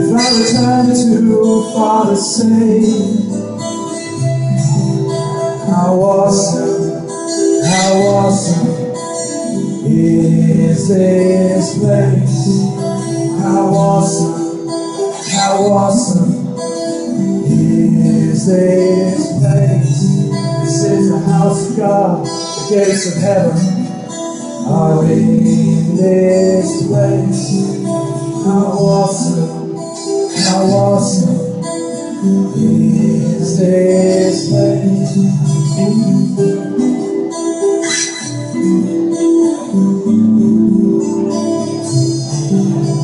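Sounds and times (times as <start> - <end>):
acoustic guitar strumming: 0.0 - 43.0
electric guitar playing: 0.0 - 43.0.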